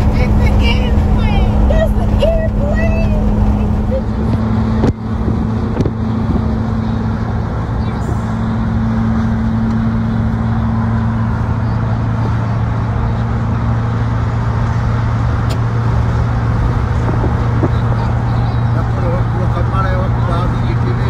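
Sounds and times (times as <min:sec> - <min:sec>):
car road and engine drone: 0:00.0 - 0:21.0.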